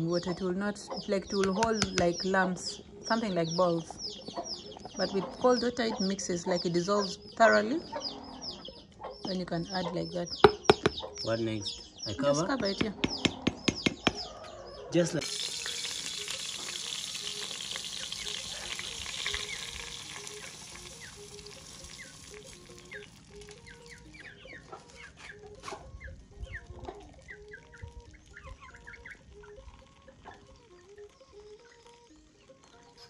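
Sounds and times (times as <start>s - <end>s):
rice poured into metal pot: 15.2s - 24.0s
chicken clucking: 24.2s - 27.6s.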